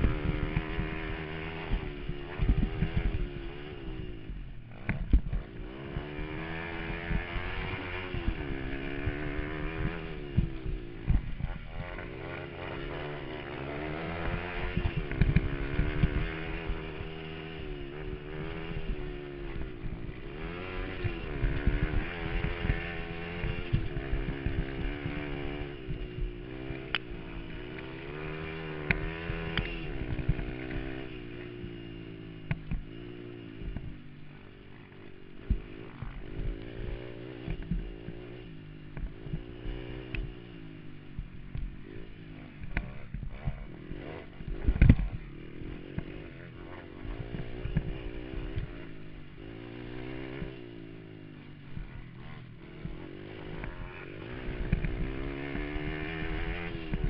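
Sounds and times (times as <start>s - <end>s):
small atv engine revving: 0.0s - 57.0s.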